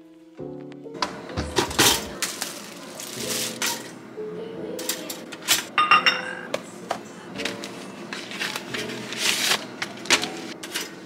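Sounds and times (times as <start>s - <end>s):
plastic package crinkling: 2.1s - 3.8s, 7.4s - 11.0s.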